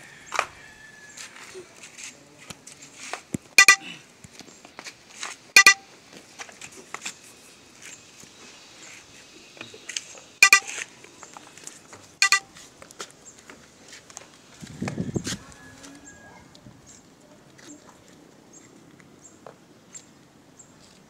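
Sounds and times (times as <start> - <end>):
car horn toots: 3.6 - 3.9.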